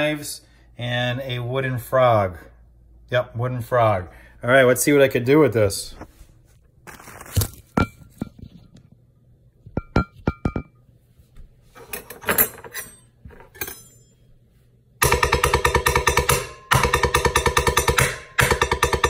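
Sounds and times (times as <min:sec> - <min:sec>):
knives striking metal bowls: 0:12.3 - 0:14.1.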